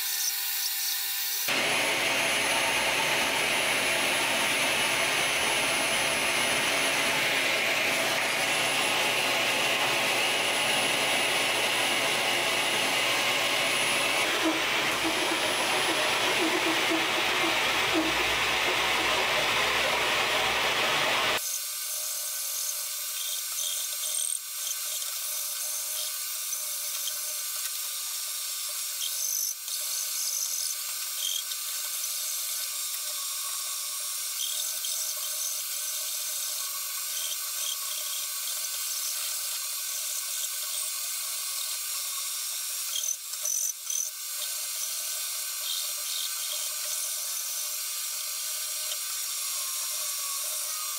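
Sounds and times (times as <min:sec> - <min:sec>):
shop vacuum running: 0:01.4 - 0:22.0
hand file scraping wood: 0:12.2 - 0:21.3.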